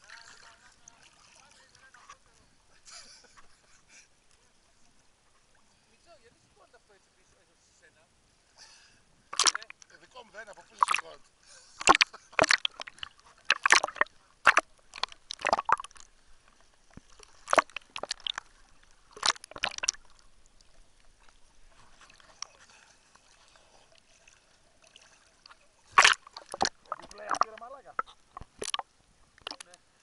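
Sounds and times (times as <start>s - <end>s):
sea water splashing: 9.3s - 30.0s.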